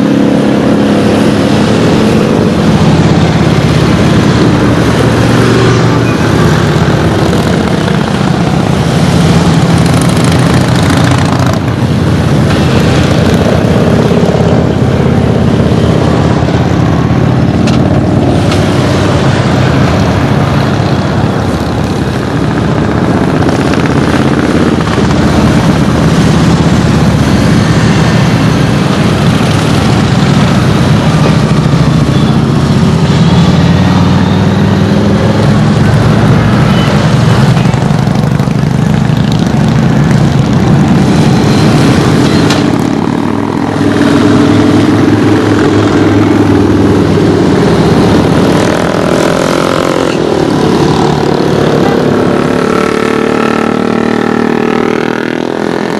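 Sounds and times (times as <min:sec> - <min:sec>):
motorcycles riding past: 0:00.0 - 0:55.9.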